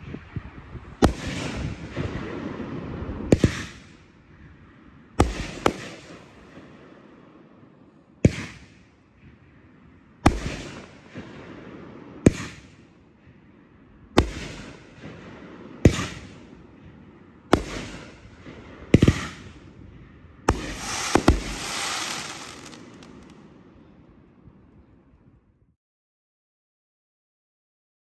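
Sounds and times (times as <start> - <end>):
firework cake booms: 20.5 - 23.4
rushing firework tail: 20.5 - 23.4.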